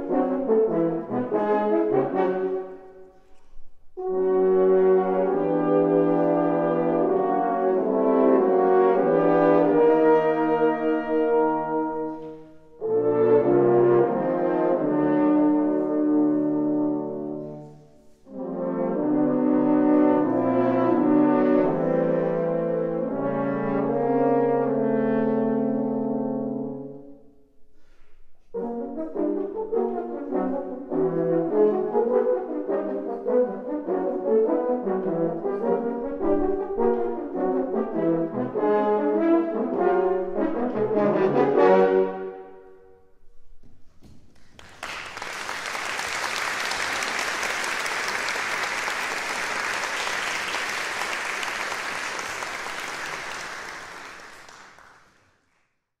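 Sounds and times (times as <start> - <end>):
french horn quartet playing: 0.0 - 3.3, 4.0 - 27.3, 28.4 - 42.9
audience applause: 44.4 - 55.3.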